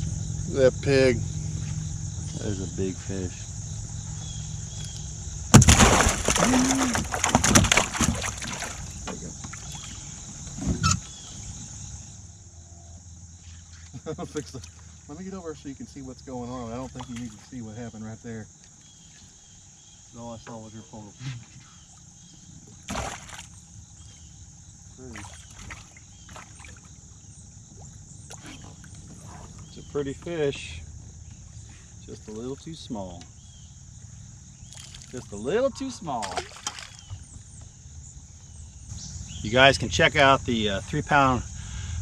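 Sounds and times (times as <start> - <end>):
insect drone: 0.0 - 42.0
fish splashing in water: 5.5 - 10.1, 22.8 - 23.7, 25.0 - 29.0, 34.6 - 37.4.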